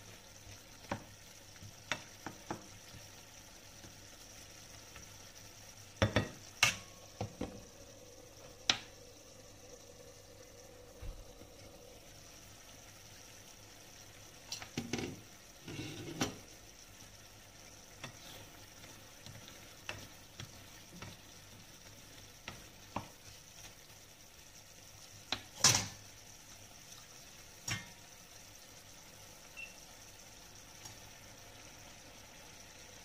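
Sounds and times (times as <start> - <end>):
faint sizzle in a pan: 0.0 - 33.0.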